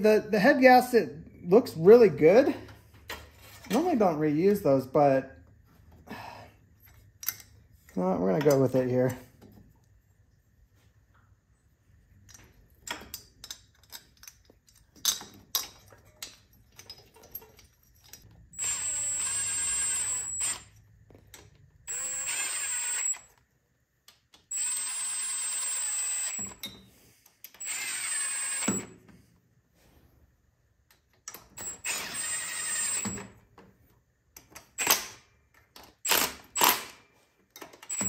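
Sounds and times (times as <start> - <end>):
power drill whine: 18.6 - 20.7, 21.9 - 23.3, 24.5 - 26.6, 27.6 - 28.9, 31.6 - 33.3.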